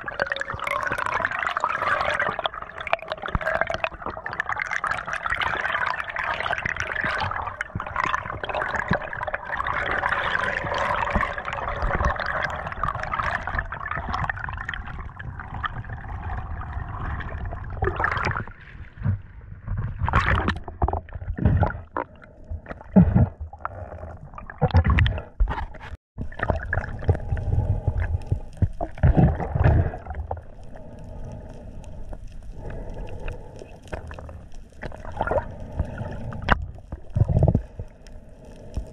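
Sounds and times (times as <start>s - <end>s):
underwater rushing and bubbles: 0.0s - 38.9s
water splashes and gurgles: 0.0s - 38.9s.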